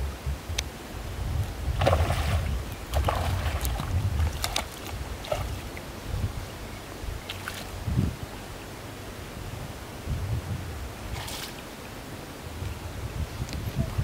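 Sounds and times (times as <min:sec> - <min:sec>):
wind rumble on microphone: 0:00.0 - 0:14.0
water splashing and sloshing: 0:01.7 - 0:06.0, 0:07.2 - 0:07.9, 0:11.0 - 0:11.8.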